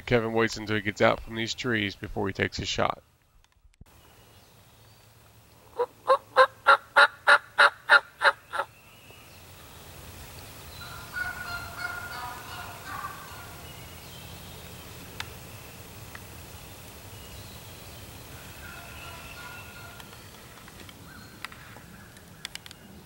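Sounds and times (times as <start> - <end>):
turkey gobble: 5.7 - 8.7, 10.8 - 13.6, 18.3 - 20.0
turkey yelps: 5.7 - 8.7, 10.8 - 13.6, 18.4 - 20.0.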